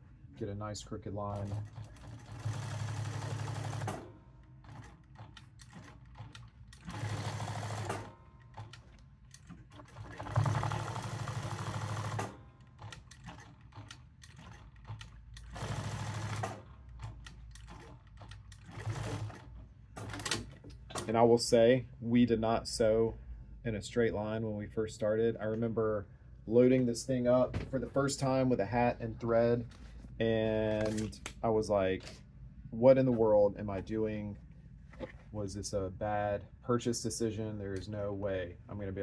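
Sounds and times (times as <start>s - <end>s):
sewing machine stitching: 1.3s - 21.1s
small clicks and handling sounds: 30.7s - 31.4s.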